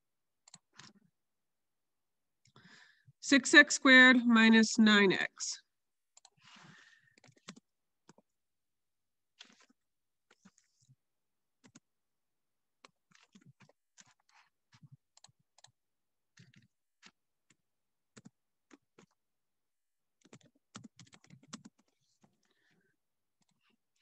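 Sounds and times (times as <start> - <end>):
keyboard typing: 7.2 - 8.2, 20.2 - 22.5.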